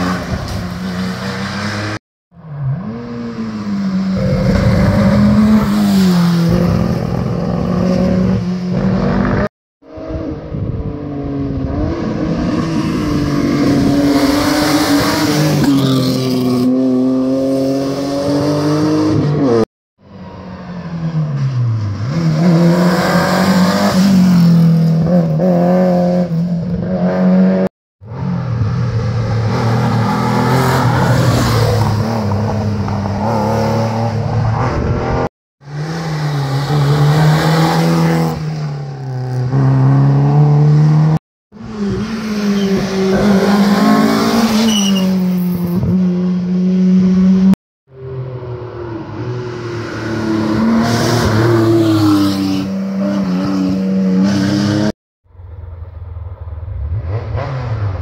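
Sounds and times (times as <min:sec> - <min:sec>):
rally cars passing at full speed: 0:00.0 - 0:58.0.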